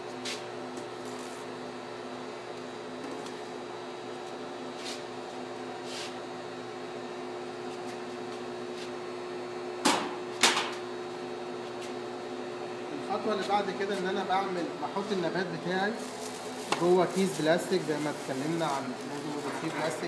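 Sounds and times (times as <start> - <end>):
steady machine hum: 0.0 - 20.0.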